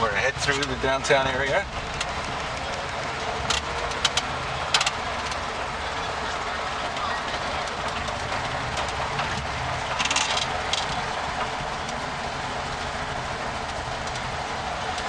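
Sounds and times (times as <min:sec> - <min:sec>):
old truck engine running: 0:00.0 - 0:15.0
rattle of sharp clicks: 0:03.4 - 0:05.4, 0:06.9 - 0:12.0.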